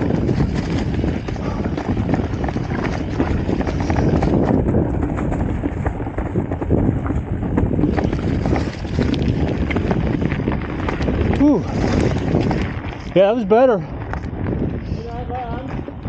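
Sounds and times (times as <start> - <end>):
bike rattling over bumps: 0.0 - 16.0
tyres crunching through leaves: 7.0 - 14.1.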